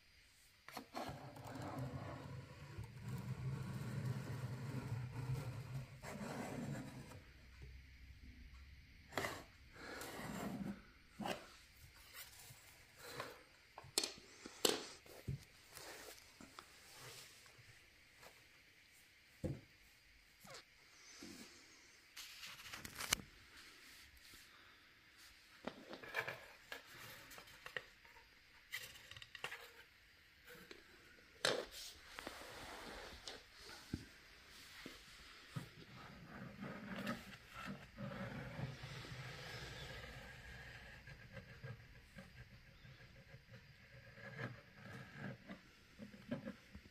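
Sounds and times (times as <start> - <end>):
string scraping on cardboard box: 0.8 - 7.3.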